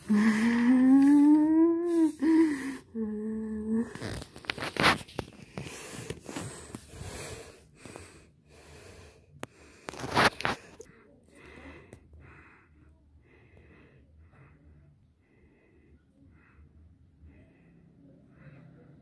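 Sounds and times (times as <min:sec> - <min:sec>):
person humming: 0:00.0 - 0:04.2
breathy mouth noises: 0:00.0 - 0:08.2.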